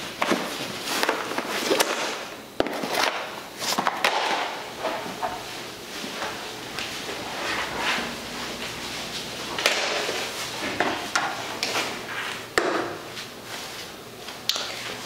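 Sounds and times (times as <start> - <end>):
footsteps: 3.6 - 15.0.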